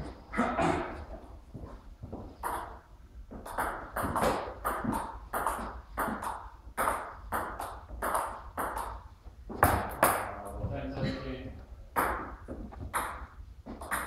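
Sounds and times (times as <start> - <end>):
table tennis ball hitting bats: 2.4 - 10.4, 11.9 - 14.0
ball bouncing on table: 3.4 - 10.4, 12.0 - 14.0.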